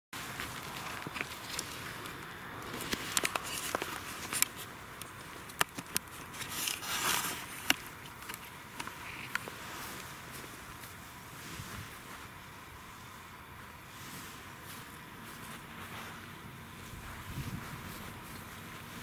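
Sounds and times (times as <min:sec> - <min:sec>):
footsteps on dry grass: 0:00.2 - 0:19.0
camera handling noise: 0:00.5 - 0:10.1.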